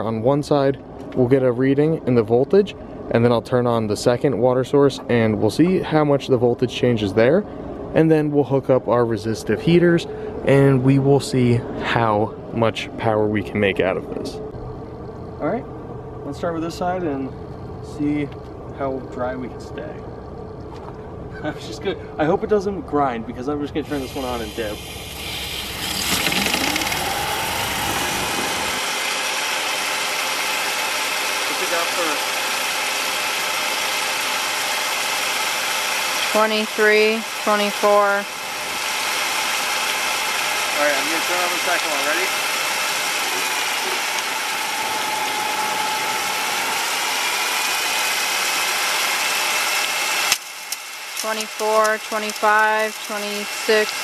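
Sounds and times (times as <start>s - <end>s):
turbine whine: 0.0s - 54.0s
water jet spraying: 23.8s - 54.0s
hiss of water spray: 23.9s - 31.0s.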